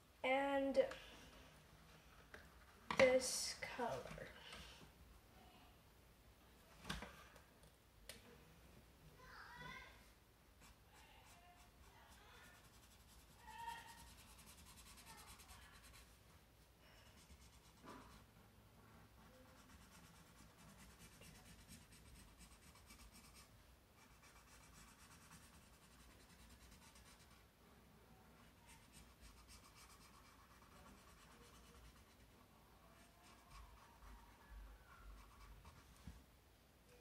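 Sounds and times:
marker scratching on paper: 10.6s - 16.2s, 17.1s - 18.3s, 19.2s - 27.4s, 28.5s - 36.0s.

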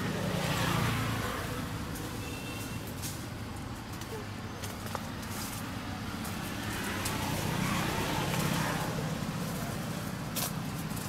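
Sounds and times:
motor vehicle passing by: 0.0s - 3.4s, 4.7s - 11.0s.

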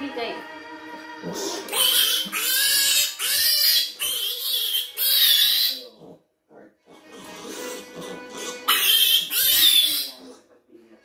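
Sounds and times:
piglet squealing: 1.3s - 6.0s, 8.6s - 10.3s.

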